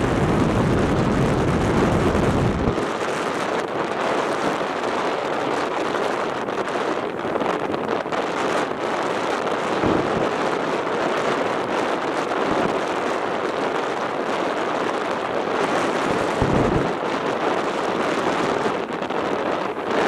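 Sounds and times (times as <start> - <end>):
storm wind on microphone: 0.0 - 20.0
low gust thumps: 9.8 - 10.4, 16.1 - 17.0.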